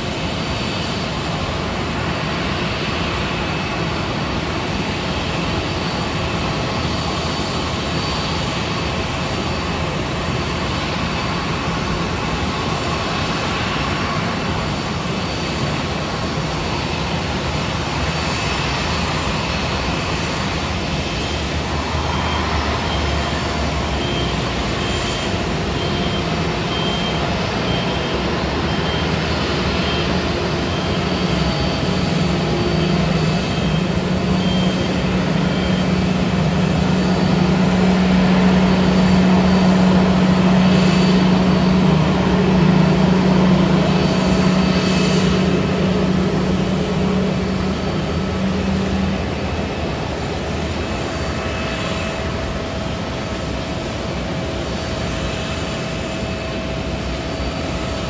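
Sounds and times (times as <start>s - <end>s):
jet engines rumbling: 0.0s - 58.0s
faint high beep: 21.8s - 42.4s.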